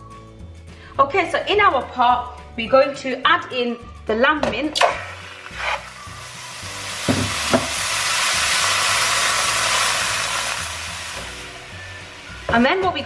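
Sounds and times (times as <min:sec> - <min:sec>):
gas burner hissing: 0:04.8 - 0:12.8.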